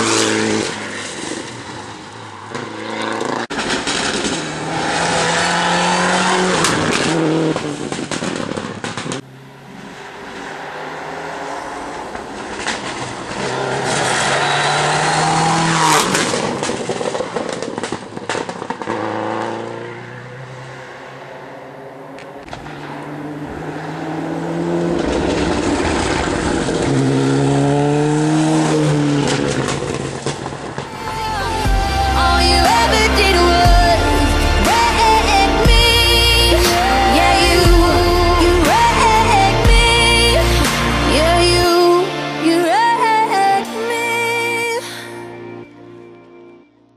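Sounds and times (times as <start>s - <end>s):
engines revving hard: 0.0s - 30.9s
rally cars passing: 0.0s - 46.2s.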